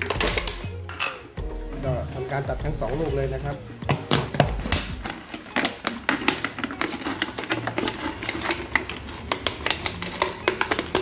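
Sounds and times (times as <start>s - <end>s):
plastic crackling and clicking: 0.0s - 1.3s, 3.9s - 11.0s.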